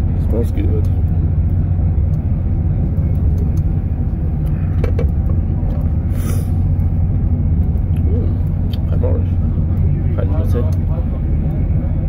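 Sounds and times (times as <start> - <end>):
train rumble inside carriage: 0.0 - 12.0
short hiss: 6.1 - 6.6.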